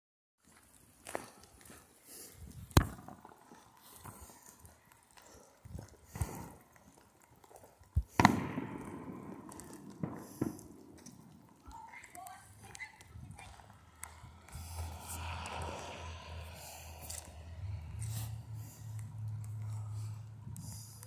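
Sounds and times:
firecracker bangs: 8.1 - 11.0.

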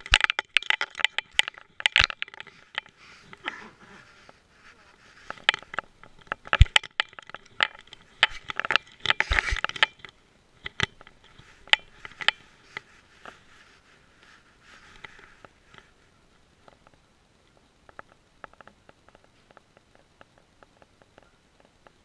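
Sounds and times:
camera clicks and scraping: 0.0 - 4.5, 5.1 - 13.5.

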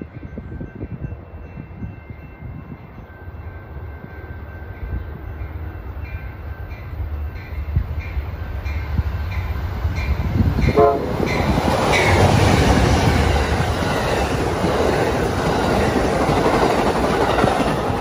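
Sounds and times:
freight train running: 0.0 - 18.0
passing train rush and clatter: 0.0 - 18.0
train horn blast: 10.6 - 12.2.

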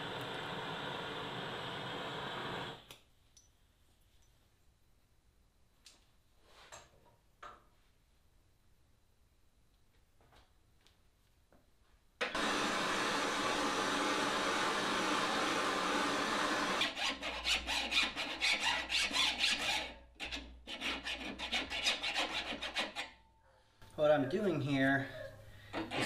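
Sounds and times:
file rasping on metal: 16.8 - 23.2, 25.7 - 26.0.

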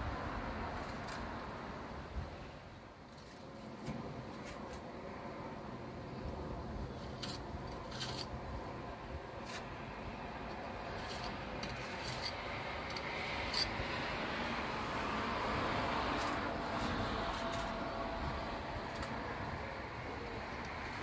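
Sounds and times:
hand tool scraping: 3.1 - 4.9, 6.8 - 8.4, 9.4 - 9.8, 10.5 - 14.1, 16.0 - 18.0, 18.8 - 19.3.

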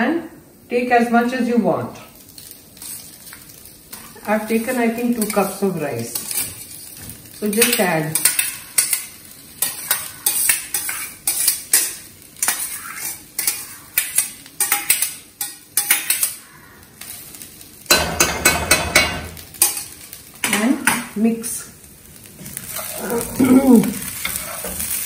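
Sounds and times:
colander knocking on wok: 17.9 - 19.4.

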